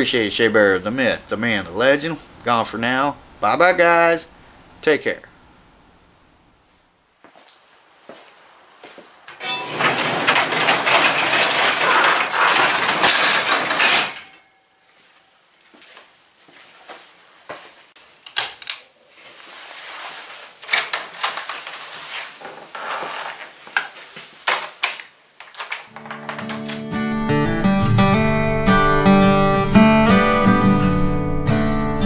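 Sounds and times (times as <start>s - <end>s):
clicks and knocks: 9.4s - 14.5s, 24.5s - 27.1s
garage door rattling: 9.4s - 14.5s, 25.5s - 28.4s.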